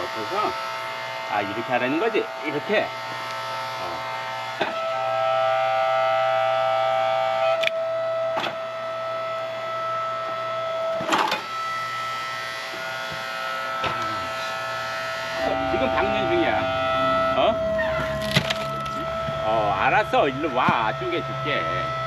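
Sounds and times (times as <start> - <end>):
hydraulic log splitter whining: 0.0 - 22.0
wood cracking: 18.0 - 19.0.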